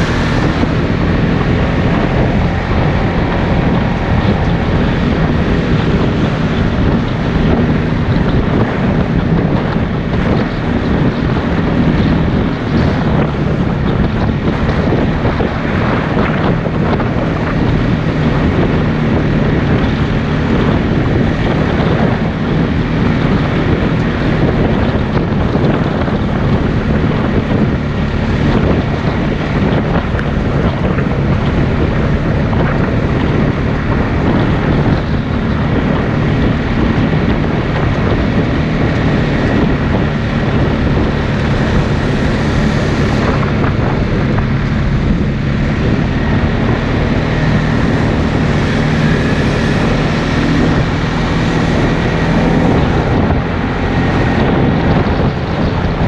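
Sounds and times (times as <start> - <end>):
atv engine running: 0.0 - 56.0
wind noise on microphone: 0.0 - 56.0.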